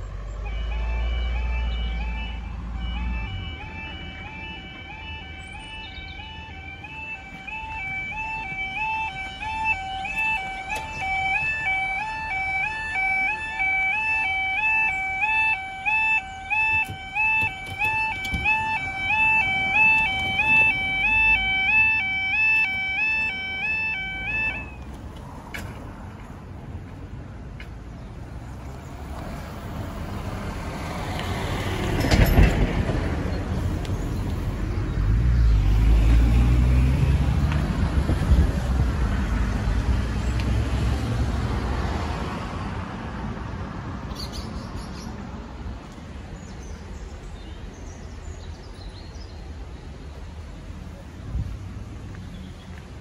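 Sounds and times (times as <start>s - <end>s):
train rumbling and rattling: 31.6s - 34.7s.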